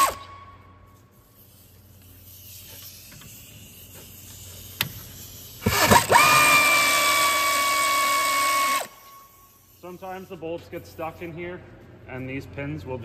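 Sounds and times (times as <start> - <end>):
cordless power tool whining: 5.6 - 9.0.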